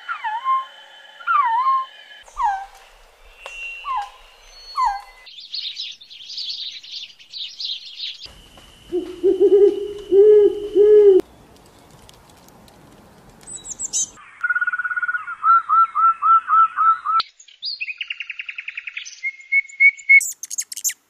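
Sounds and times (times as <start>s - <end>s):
owl hooting: 0.0s - 5.3s, 8.9s - 11.2s
rapid high bird chirping: 0.0s - 10.8s, 13.5s - 21.0s
bird whistling falling calls: 0.0s - 12.0s, 13.5s - 21.0s.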